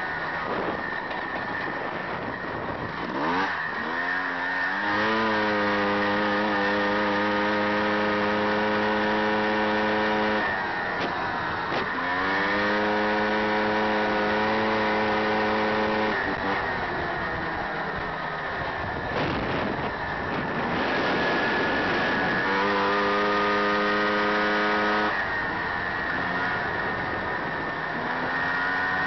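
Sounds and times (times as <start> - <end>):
buggy engine revving: 0.0 - 29.0
rushing wind: 0.0 - 29.0.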